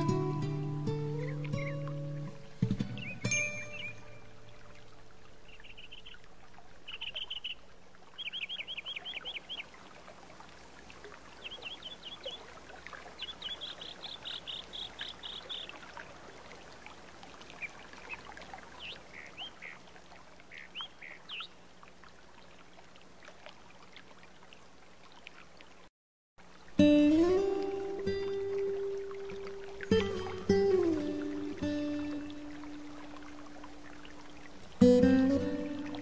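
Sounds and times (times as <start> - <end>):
stream water running: 0.0 - 36.0
songbirds trilling and chirping: 0.8 - 9.8, 11.3 - 16.8, 17.5 - 21.7.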